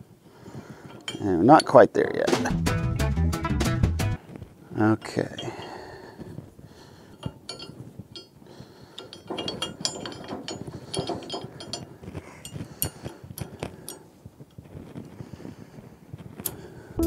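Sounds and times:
metal pin and clip clinking: 0:07.1 - 0:08.4, 0:09.0 - 0:14.1.

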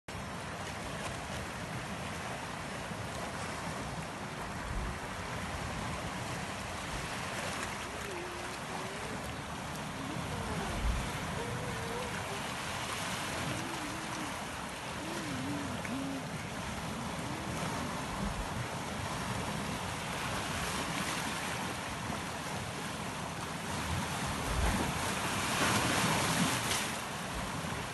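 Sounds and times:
sea waves washing over rocks: 0:00.2 - 0:27.9
wind buffeting microphone: 0:04.6 - 0:20.9
faint wavering pitched sound: 0:07.8 - 0:12.6.

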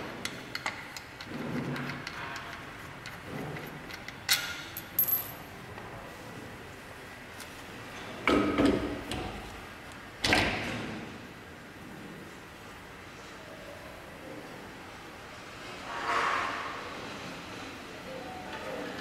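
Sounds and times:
metal parts clinking and clanking: 0:00.4 - 0:05.5.

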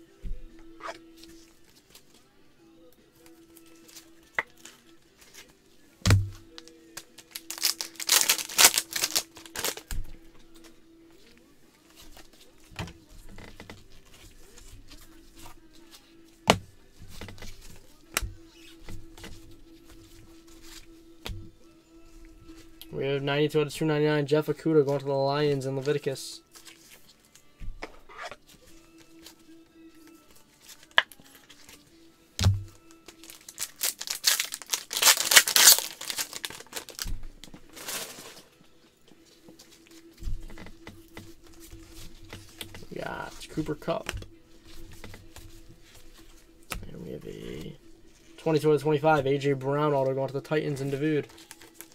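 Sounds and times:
foil wrapper crinkling: 0:06.5 - 0:10.0, 0:32.5 - 0:38.5, 0:50.8 - 0:51.9
cards rustling and sliding: 0:07.0 - 0:10.0, 0:33.1 - 0:38.5.

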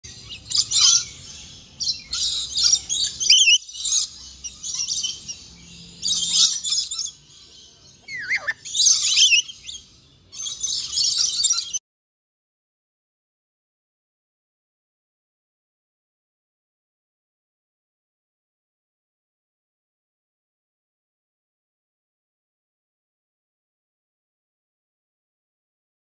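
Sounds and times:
lorikeets chattering: 0:00.1 - 0:11.8.

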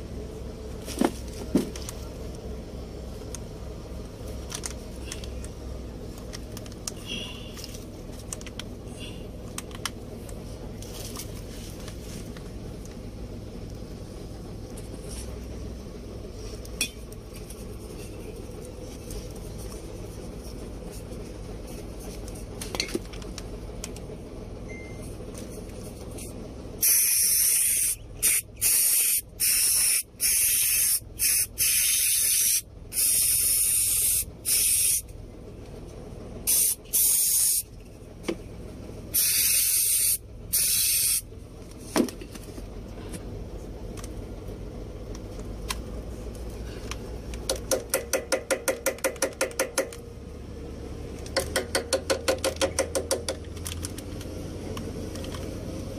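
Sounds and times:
aerosol spray hissing: 0:26.8 - 0:35.0, 0:36.5 - 0:37.6, 0:39.2 - 0:41.2.

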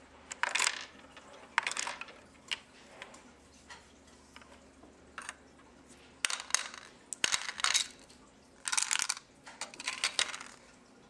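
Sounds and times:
gumballs rattling in plastic tray: 0:00.3 - 0:02.2, 0:06.2 - 0:08.0, 0:08.6 - 0:10.6.

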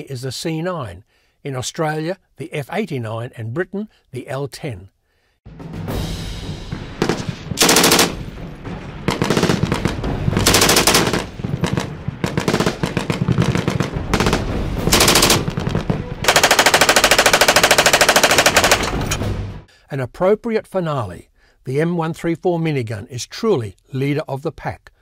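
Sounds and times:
machine-gun bursts: 0:07.0 - 0:08.2, 0:09.1 - 0:15.6, 0:16.2 - 0:19.2.

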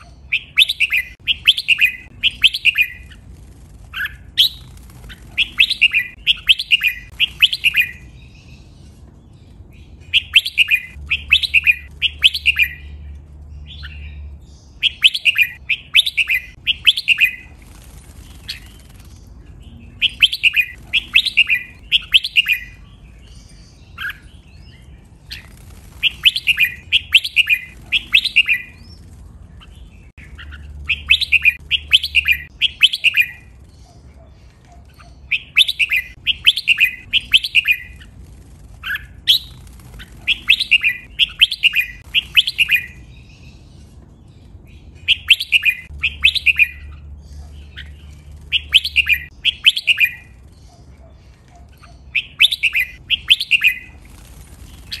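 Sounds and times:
bulbul singing: 0:00.0 - 0:55.0.

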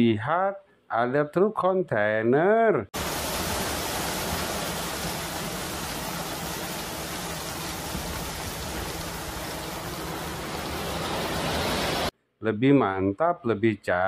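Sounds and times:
gravel pouring and sliding: 0:03.0 - 0:12.1.

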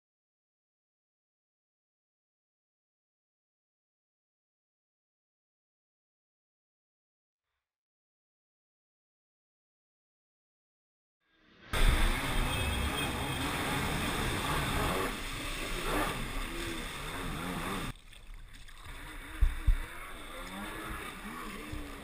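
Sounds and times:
jet ski engine running: 0:11.8 - 0:17.9, 0:19.0 - 0:22.0
water spray: 0:11.8 - 0:22.0.

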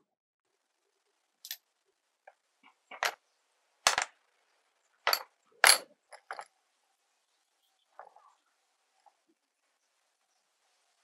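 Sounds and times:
metal parts clinking: 0:05.1 - 0:06.4.

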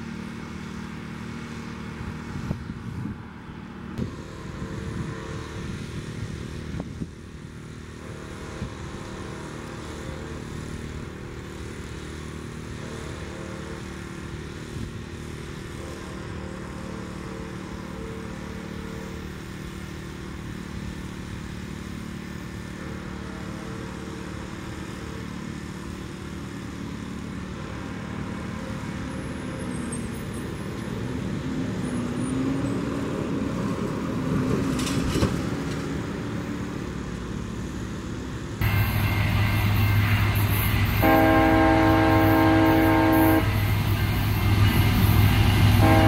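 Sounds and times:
road traffic: 0:00.0 - 0:46.0
train air horn: 0:04.0 - 0:06.1, 0:07.9 - 0:10.8, 0:12.5 - 0:19.6, 0:38.6 - 0:46.0
loud low drone: 0:38.3 - 0:46.0.

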